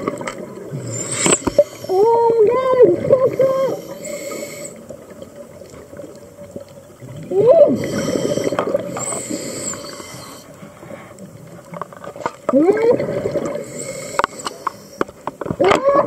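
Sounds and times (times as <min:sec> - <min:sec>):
water hiss: 0:00.6 - 0:05.5, 0:07.3 - 0:11.5, 0:13.2 - 0:15.3
muffled voice underwater: 0:01.8 - 0:04.0, 0:07.2 - 0:08.0, 0:12.5 - 0:13.4, 0:15.6 - 0:16.0.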